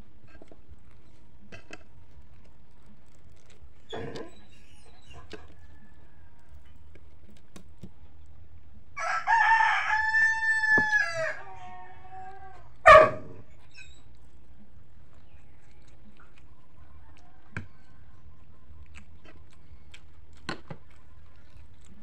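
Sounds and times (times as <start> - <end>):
rooster crowing: 5.6 - 6.7, 9.0 - 13.0.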